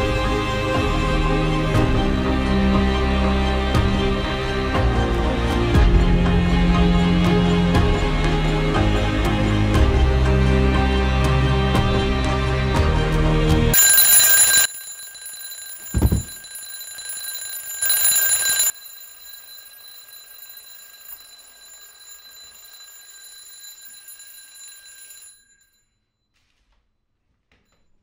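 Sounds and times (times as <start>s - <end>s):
alarm clock bells ringing: 13.8s - 25.8s
faint high ringing: 13.8s - 26.2s
dull thump: 15.9s - 16.4s.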